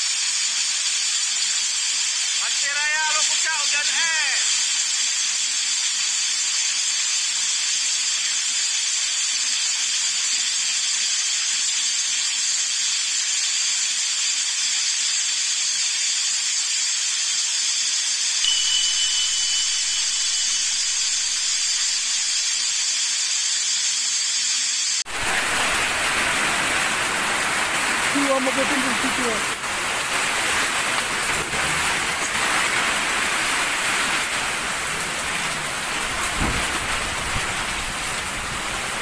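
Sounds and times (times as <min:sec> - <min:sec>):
heavy downpour rushing: 0:00.0 - 0:05.7, 0:18.4 - 0:23.2, 0:25.0 - 0:39.0
heavy rain and hail falling: 0:00.0 - 0:17.2, 0:18.4 - 0:23.0, 0:25.1 - 0:39.0.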